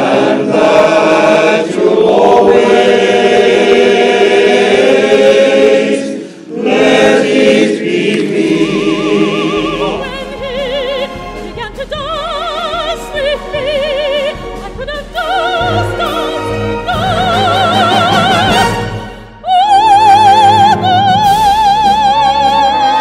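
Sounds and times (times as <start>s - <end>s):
male choir singing: 0.0s - 10.0s
woman singing operatically: 8.7s - 23.0s.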